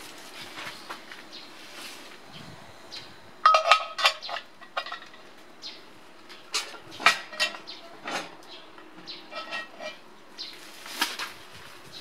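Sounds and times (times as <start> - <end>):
metal lid clinks and clanks: 3.4 - 5.2, 6.5 - 8.4, 9.3 - 10.0.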